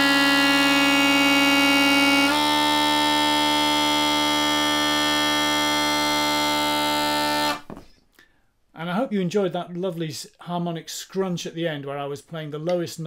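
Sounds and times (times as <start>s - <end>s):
bagpipes playing: 0.0s - 7.7s.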